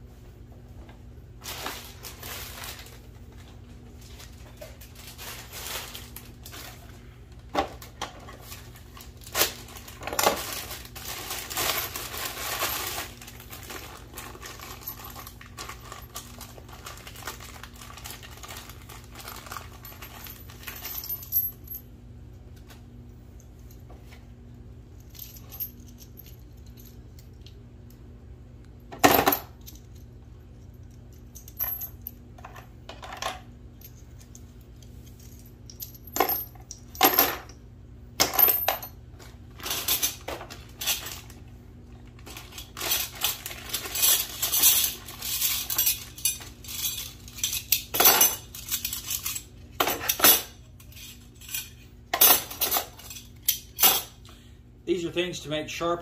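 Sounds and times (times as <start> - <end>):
metal fittings clinking and rattling: 42.2 - 54.1.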